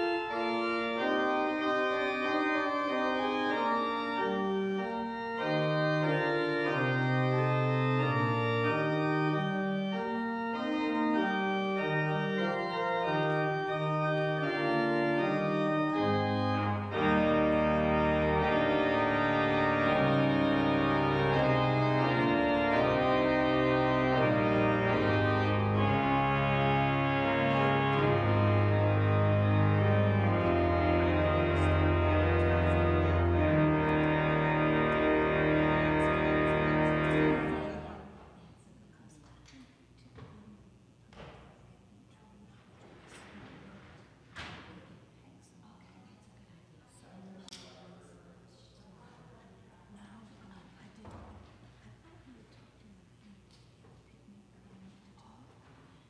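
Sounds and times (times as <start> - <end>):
organ chords: 0.0 - 38.1.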